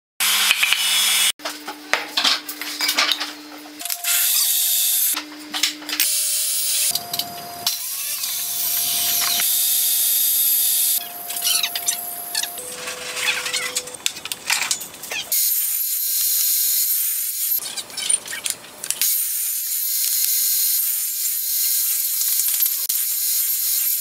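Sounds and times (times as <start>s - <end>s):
steady hum: 2.6s - 14.7s.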